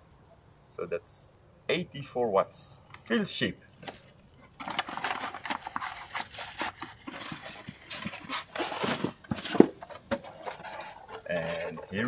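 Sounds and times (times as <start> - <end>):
plastic bag rustling: 3.8 - 12.0
cardboard and foam scraping: 4.6 - 12.0.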